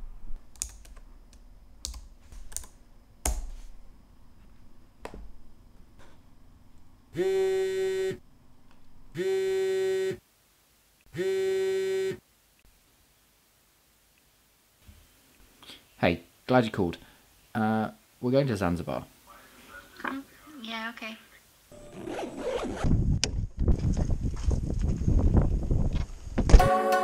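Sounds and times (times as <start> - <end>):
keyboard typing: 0.4 - 3.4.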